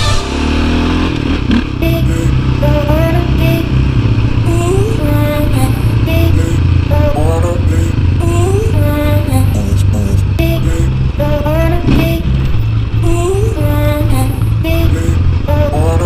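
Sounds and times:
dirt bike engine running: 0.0 - 16.0.

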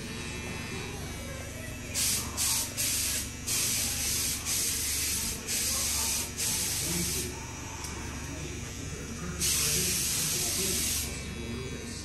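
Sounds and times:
hissing spray bursts: 9.4 - 11.1.

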